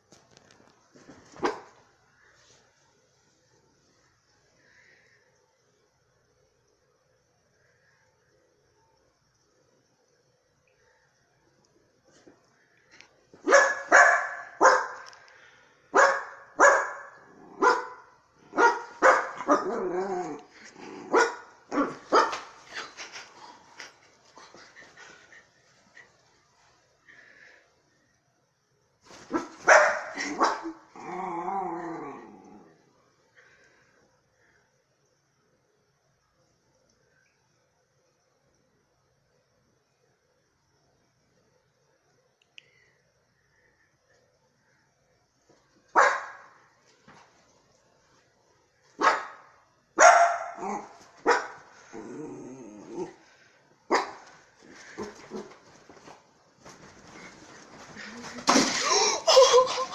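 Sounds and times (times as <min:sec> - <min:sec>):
small dog barking: 0:01.4 - 0:01.8, 0:13.4 - 0:15.1, 0:15.9 - 0:20.3, 0:21.0 - 0:22.5, 0:29.3 - 0:30.8, 0:45.9 - 0:46.6, 0:49.0 - 0:51.7, 0:53.9 - 0:54.3
dog growling: 0:19.4 - 0:22.1, 0:30.2 - 0:32.8, 0:51.8 - 0:53.3.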